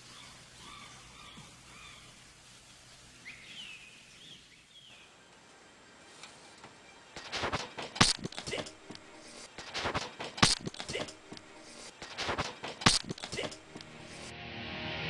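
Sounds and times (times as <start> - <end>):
small clicks and scrapes: 6.1 - 14.3.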